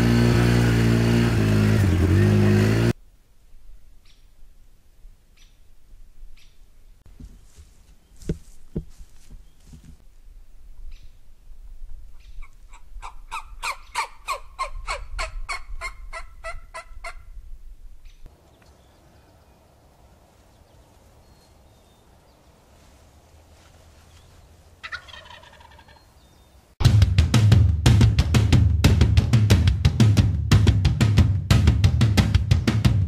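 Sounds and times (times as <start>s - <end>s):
wild turkey calling: 12.1s - 17.3s, 24.0s - 26.6s
rock music with heavy drums: 26.8s - 33.0s.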